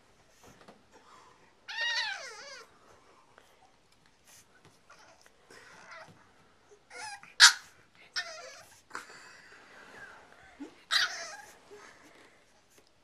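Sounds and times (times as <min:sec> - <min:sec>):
puppy whining and yipping: 0:01.7 - 0:02.7, 0:06.8 - 0:08.9, 0:10.9 - 0:11.8.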